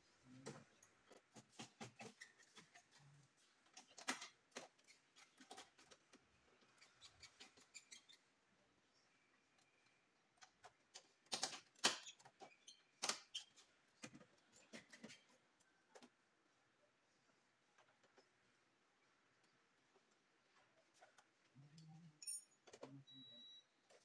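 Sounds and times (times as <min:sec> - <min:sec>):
plastic clips clicking and knocking: 0:10.4 - 0:12.0.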